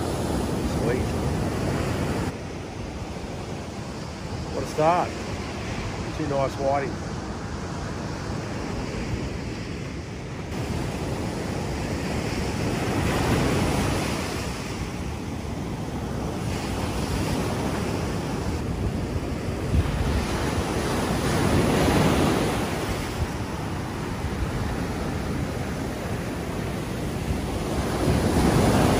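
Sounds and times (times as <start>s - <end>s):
ocean surf breaking: 0.0s - 28.9s
wind buffeting microphone: 0.0s - 28.9s.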